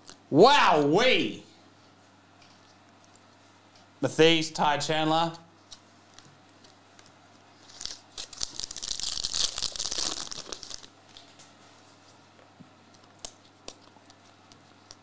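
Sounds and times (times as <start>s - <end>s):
foil wrapper tearing and crinkling: 7.6s - 10.9s.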